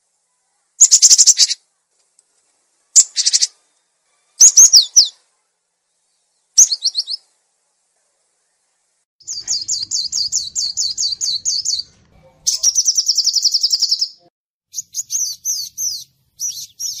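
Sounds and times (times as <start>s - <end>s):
songbirds singing: 0.0s - 17.0s
fast high bird trill: 3.0s - 3.6s, 6.6s - 7.2s, 9.2s - 11.9s.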